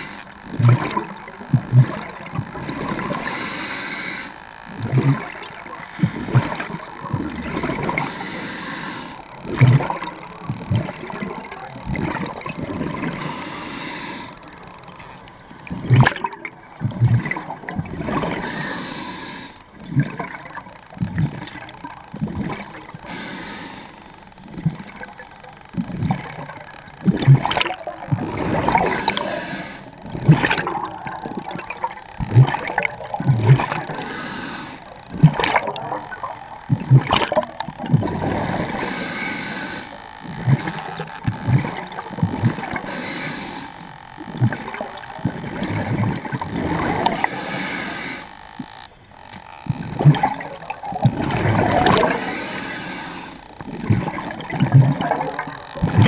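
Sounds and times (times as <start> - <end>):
regulator hissing inhale: 0.0 - 0.3, 3.2 - 4.4, 7.9 - 9.3, 13.2 - 14.5, 18.4 - 19.7, 23.0 - 24.5, 28.8 - 30.1, 33.9 - 35.0, 38.7 - 40.0, 42.8 - 43.9, 47.0 - 48.4, 51.9 - 53.6
exhaled bubbles gurgling underwater: 0.0 - 56.0.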